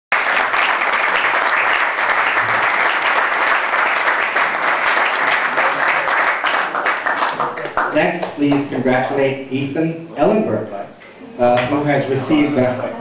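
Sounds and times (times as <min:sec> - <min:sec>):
audience applauding: 0:00.1 - 0:08.7.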